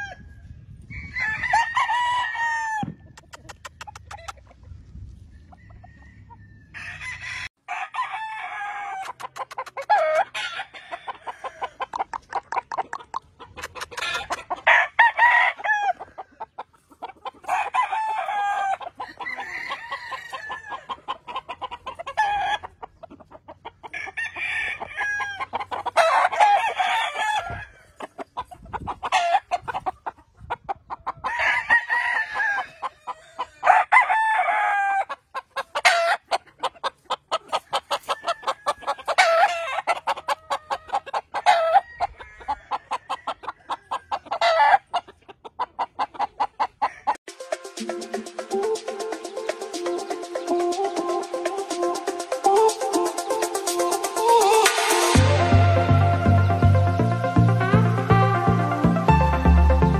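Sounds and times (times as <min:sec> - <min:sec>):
roosters crowing: 0:00.0 - 0:04.4, 0:05.2 - 0:12.7, 0:13.6 - 0:23.0, 0:23.6 - 0:30.0, 0:31.0 - 0:45.0, 0:46.0 - 0:59.9
sharp clucks: 0:02.8 - 0:06.4, 0:08.9 - 0:18.0, 0:18.6 - 0:26.8, 0:27.4 - 0:31.3, 0:35.0 - 0:55.2.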